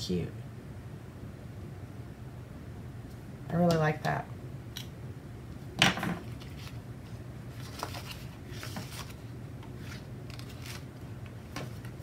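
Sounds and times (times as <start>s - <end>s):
steady low hum: 0.0s - 12.0s
paper pages rustling: 6.3s - 12.0s.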